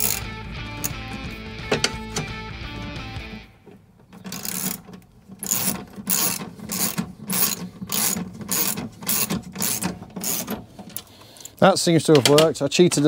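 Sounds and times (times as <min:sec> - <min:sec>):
socket ratchet clicking: 0:00.0 - 0:02.3, 0:04.2 - 0:11.6.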